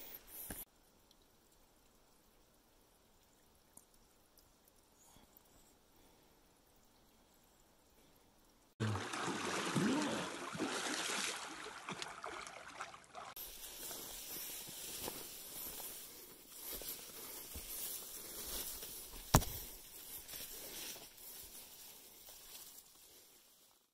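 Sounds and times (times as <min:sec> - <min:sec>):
water splashing from swimming: 0:08.8 - 0:13.4
rustle of brush and leaves: 0:13.3 - 0:23.9.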